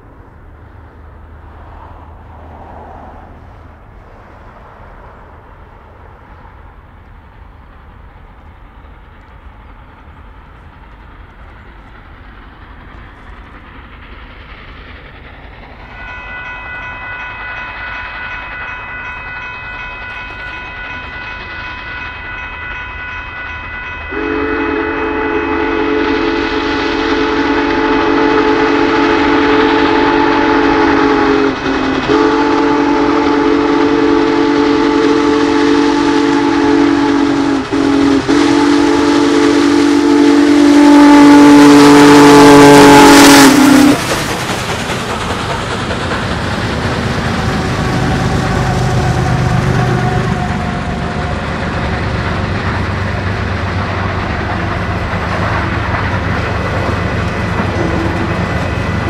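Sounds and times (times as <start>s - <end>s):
loud low whistle chord: 24.1s - 44.0s
steam whistle blasts: 24.1s - 44.0s, 47.3s - 51.5s.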